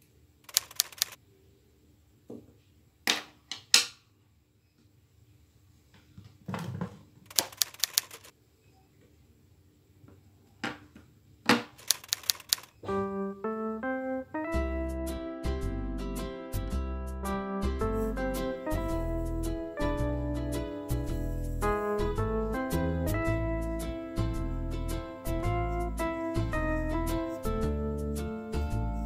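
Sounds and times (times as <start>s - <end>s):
typewriter key clicks: 0.5s - 1.2s, 7.3s - 8.3s, 11.8s - 12.7s
plucked-string melody: 12.9s - 29.0s.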